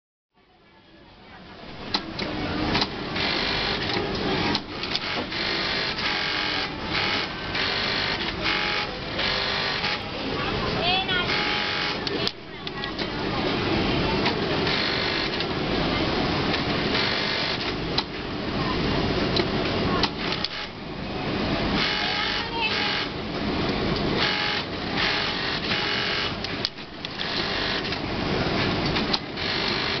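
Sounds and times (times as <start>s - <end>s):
din of other sewing machines: 1.9s - 18.0s, 18.8s - 23.2s, 23.8s - 30.0s
sewing machine stitching: 14.6s - 15.4s, 24.2s - 27.9s, 29.4s - 30.0s.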